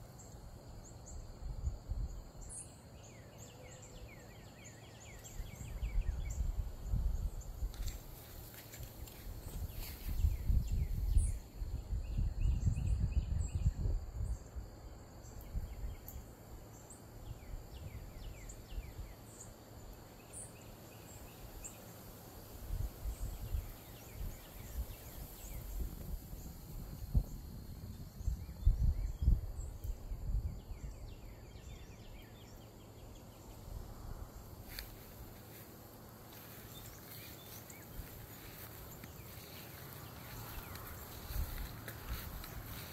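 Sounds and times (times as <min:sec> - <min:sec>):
faint high insect-like hum: 0:00.0 - 0:42.9
wind rumbling on microphone: 0:00.8 - 0:02.5, 0:05.2 - 0:19.2, 0:22.4 - 0:42.9
birds chirping: 0:28.1 - 0:42.9.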